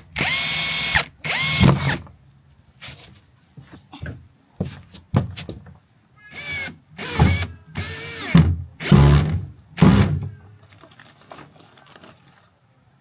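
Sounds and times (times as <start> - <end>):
cordless drill whine: 0.0 - 2.1, 6.3 - 10.2.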